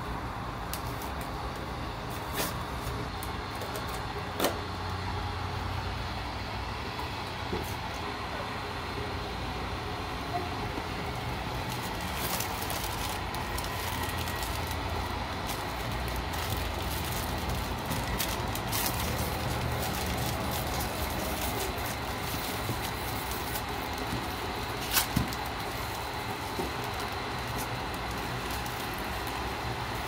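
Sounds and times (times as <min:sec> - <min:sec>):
low rumbling background noise: 0:00.0 - 0:30.0
plastic wrappers crinkling: 0:10.8 - 0:30.0.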